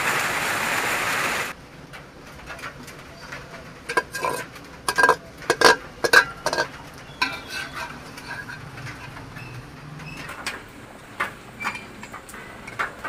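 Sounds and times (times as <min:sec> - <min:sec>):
metal spoon scraping steel bowl: 0:03.9 - 0:09.6.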